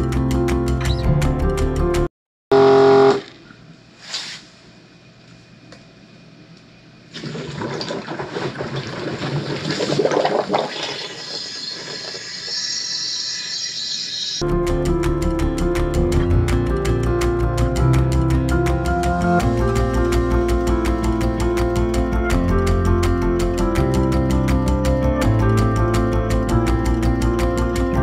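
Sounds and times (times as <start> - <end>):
background music: 0.0 - 2.1, 14.4 - 28.0
fluid and air gurgling through valve: 7.2 - 14.4.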